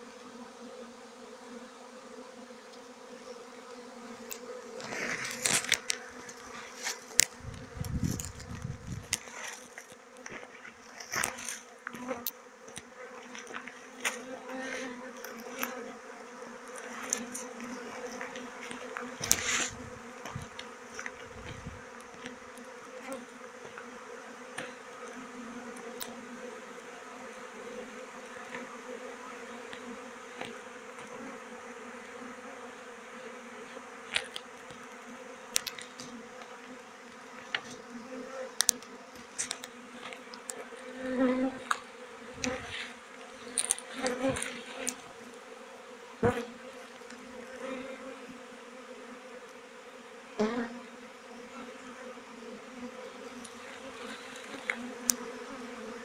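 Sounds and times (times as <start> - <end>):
bees buzzing: 0.0 - 56.0
brush clicks and rustles: 4.2 - 12.1, 16.7 - 22.6, 41.6 - 45.2, 53.4 - 55.2.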